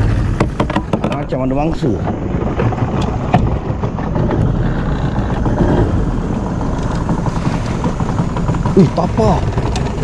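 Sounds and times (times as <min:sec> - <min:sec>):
boat engine idling: 0:00.0 - 0:10.0
sharp knocks: 0:00.3 - 0:04.5.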